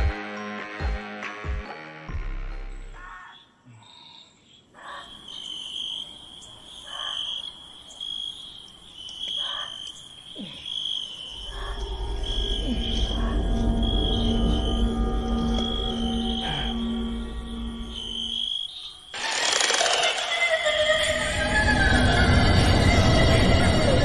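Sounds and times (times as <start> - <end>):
short lower insect call: 4.8 - 21.0
high cricket-like trill: 9.2 - 21.5
low rumbling drone: 11.4 - 18.4.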